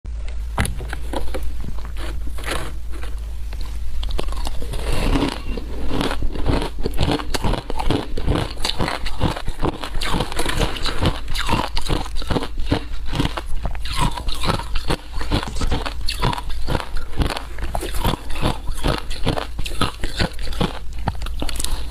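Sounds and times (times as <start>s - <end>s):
frozen ice crunched by teeth: 1.1s - 3.2s, 4.0s - 21.9s.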